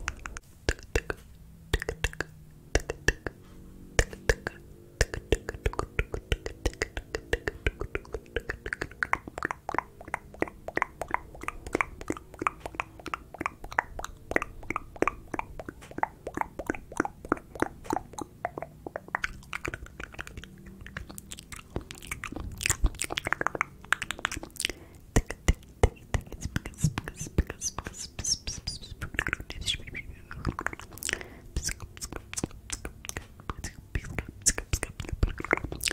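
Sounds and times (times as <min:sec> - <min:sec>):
wet mouth and tongue clicks: 0:00.0 - 0:03.4, 0:04.0 - 0:35.9.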